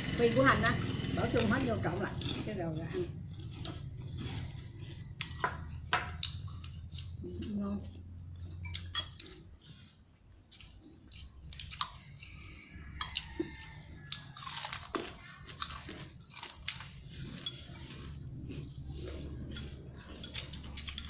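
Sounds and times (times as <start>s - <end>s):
crackers being crunched: 14.0s - 19.3s.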